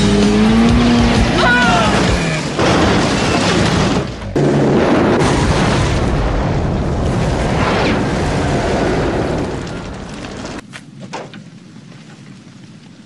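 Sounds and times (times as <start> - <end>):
car explosion blast: 1.8 - 10.6.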